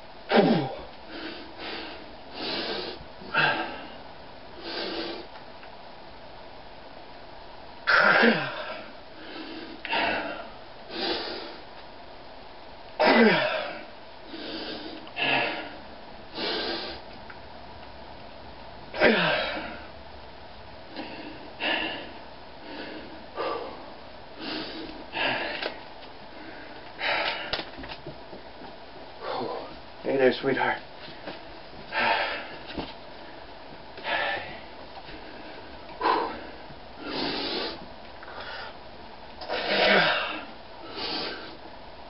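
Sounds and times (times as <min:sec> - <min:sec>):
man breathing forcefully: 0:00.6 - 0:05.3, 0:07.9 - 0:11.7, 0:13.2 - 0:17.1, 0:18.9 - 0:19.9, 0:20.9 - 0:27.7, 0:29.2 - 0:29.8, 0:31.8 - 0:33.4, 0:34.0 - 0:38.8, 0:39.4 - 0:41.7
man grunting with strain: 0:07.9 - 0:08.9, 0:13.0 - 0:13.8, 0:19.0 - 0:19.8, 0:39.5 - 0:40.5.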